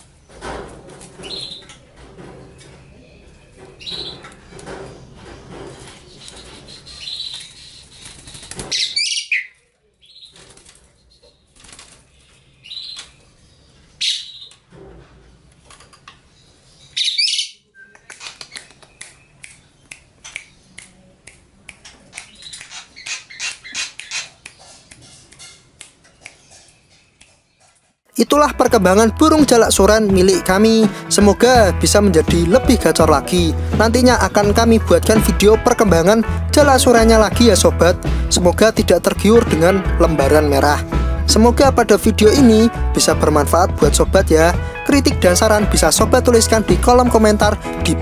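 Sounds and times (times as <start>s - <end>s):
wing flutters: 4.6s - 13.1s
starling high calls: 6.0s - 8.2s.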